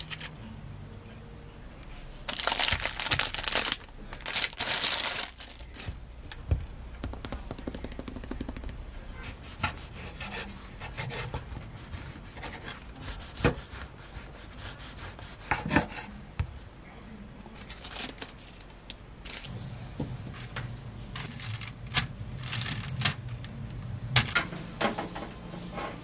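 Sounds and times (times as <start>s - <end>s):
crusty bread crackling: 2.3s - 5.9s, 21.2s - 23.4s.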